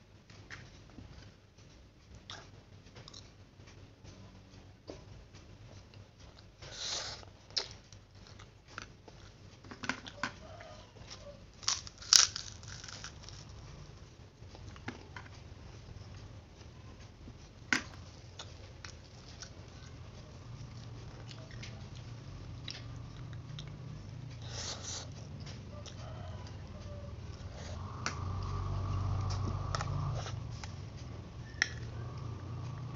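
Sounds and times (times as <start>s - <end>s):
person chewing: 6.4s - 9.4s, 11.5s - 13.7s, 17.8s - 27.8s
low hum: 11.0s - 32.9s.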